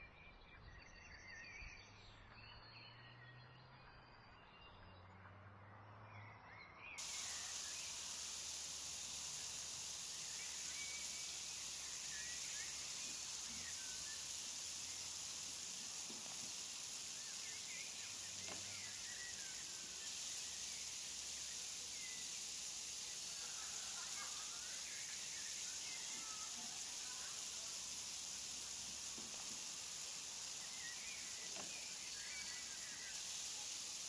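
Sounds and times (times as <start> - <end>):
meat sizzling on a grill: 7.0 - 34.0
small crackles: 7.0 - 34.0.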